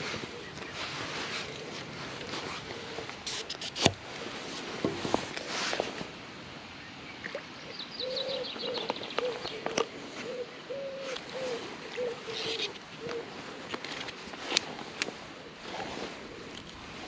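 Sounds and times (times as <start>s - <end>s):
songbird trill: 6.8s - 13.3s
pigeon cooing: 8.0s - 13.4s.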